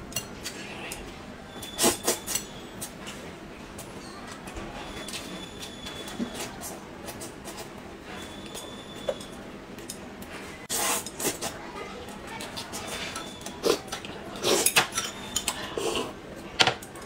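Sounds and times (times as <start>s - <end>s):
chopsticks scraping porcelain bowl: 12.5s - 16.2s.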